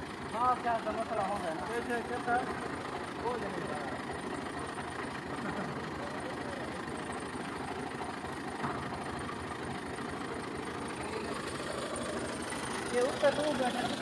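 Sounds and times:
tractor diesel engine idling: 0.0 - 14.0
faint voices: 5.7 - 7.2.

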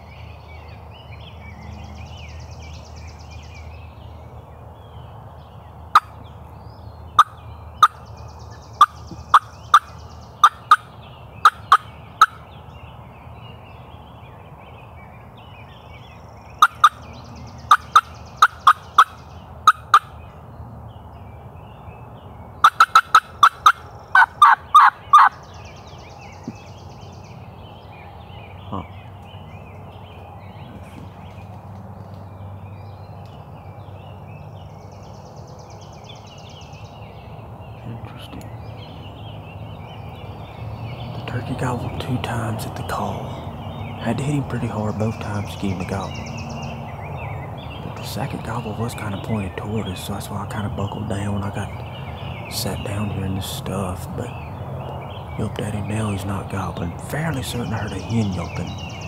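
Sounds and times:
songbirds chirping: 0.0 - 59.0
turkey call yelps: 7.2 - 8.0, 8.8 - 12.5, 16.6 - 17.0, 17.7 - 20.2, 22.6 - 25.4
fast turkey call cutts: 16.6 - 17.0, 22.6 - 25.3.

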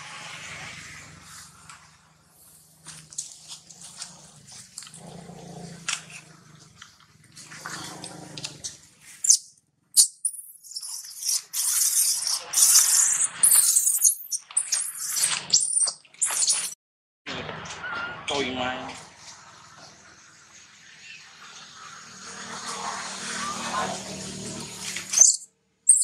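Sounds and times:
baby monkey screaming: 10.0 - 16.7.

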